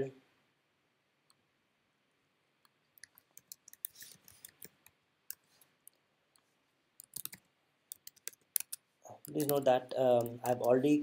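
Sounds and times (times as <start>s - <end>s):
computer keyboard key clicks: 7.0s - 9.6s.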